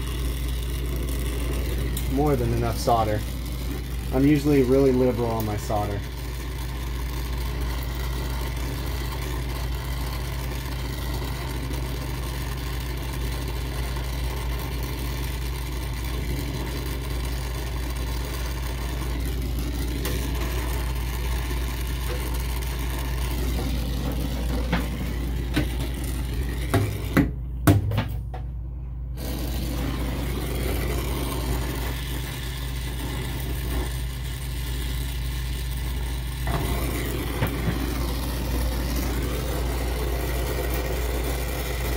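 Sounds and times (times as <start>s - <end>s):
torch flame hissing: 0.0s - 27.6s, 29.0s - 41.9s.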